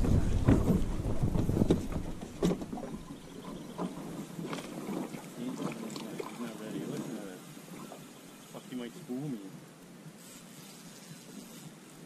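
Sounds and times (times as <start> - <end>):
wind rumbling on microphone: 0.0 - 8.2.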